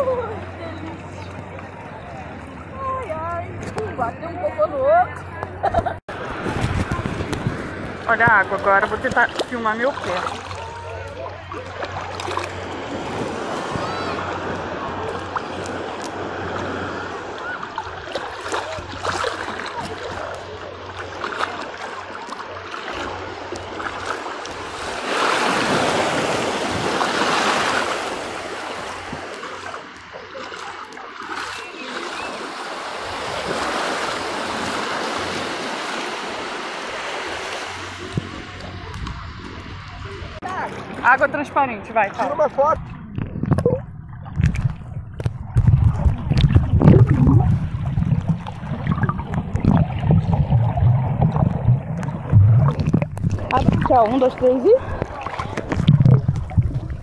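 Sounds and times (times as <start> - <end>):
muffled underwater rumble and sloshing: 0.0 - 41.2, 42.0 - 57.0
seawater washing around a foot: 6.1 - 39.7, 43.6 - 57.0.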